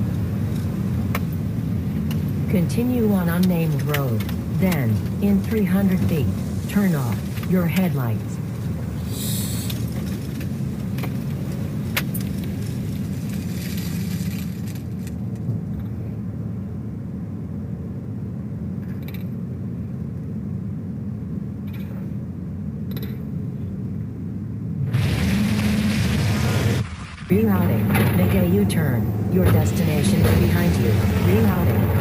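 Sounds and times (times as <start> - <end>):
car driving rumble: 0.0 - 16.4, 24.7 - 32.0.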